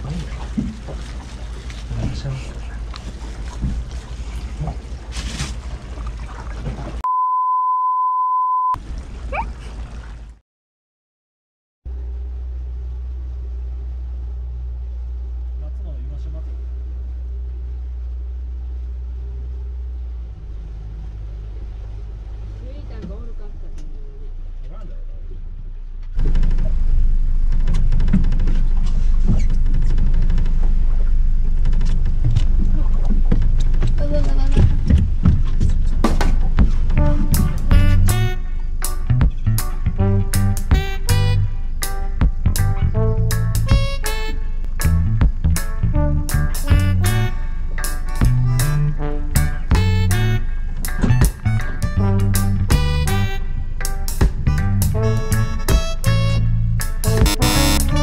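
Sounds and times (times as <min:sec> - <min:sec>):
water noise: 0:00.0 - 0:07.1, 0:08.7 - 0:10.4, 0:11.9 - 0:58.0
censor beep: 0:07.0 - 0:08.8.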